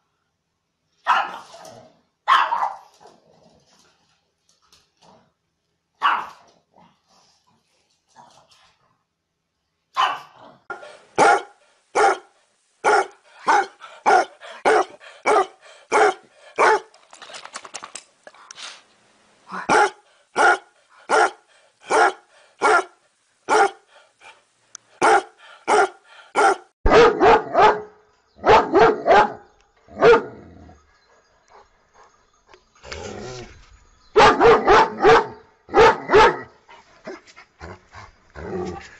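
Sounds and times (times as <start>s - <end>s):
dog barking: 1.0s - 1.6s, 2.3s - 2.9s, 6.0s - 6.4s, 10.0s - 16.9s, 19.6s - 23.9s, 25.0s - 30.4s, 34.2s - 36.5s.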